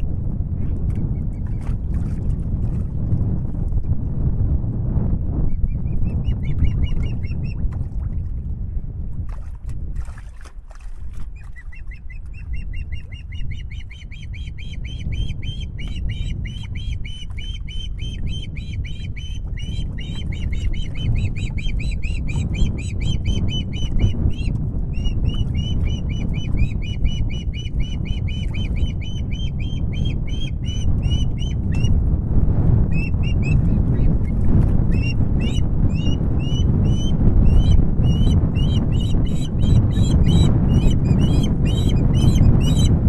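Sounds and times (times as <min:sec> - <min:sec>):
wind rumble on microphone: 0:00.0 - 0:43.0
osprey whistled chirps: 0:11.7 - 0:31.9.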